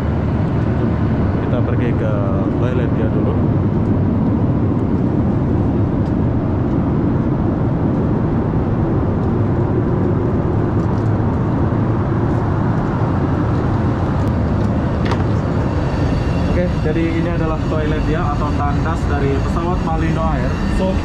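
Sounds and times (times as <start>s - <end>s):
airliner cabin engine rumble: 0.0s - 21.0s.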